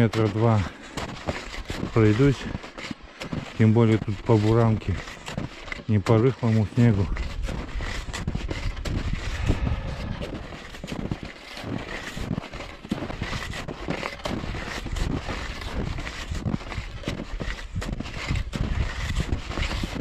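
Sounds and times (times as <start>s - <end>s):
skis crunching on snow: 0.0s - 20.0s
wind rumble on microphone: 7.0s - 11.3s, 13.1s - 20.0s.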